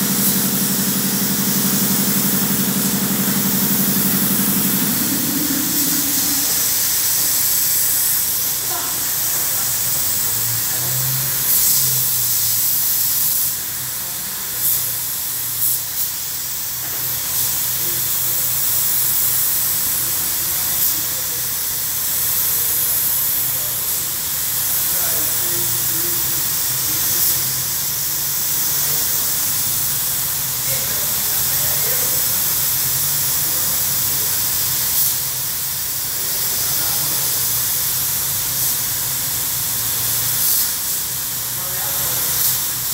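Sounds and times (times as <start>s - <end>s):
low steady hum: 0.0s - 7.1s
paint spray gun hissing: 0.0s - 42.9s.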